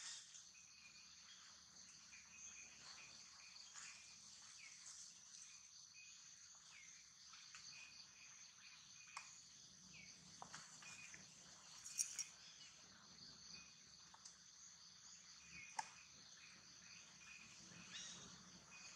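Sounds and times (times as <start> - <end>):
insect chirps: 0.0 - 18.9
faint click: 15.7 - 16.0.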